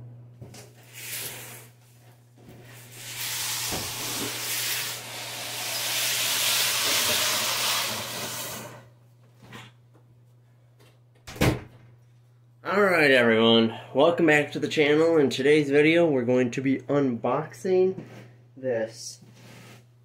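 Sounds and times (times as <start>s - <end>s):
cardboard box scraping on carpet: 19.4s - 19.9s.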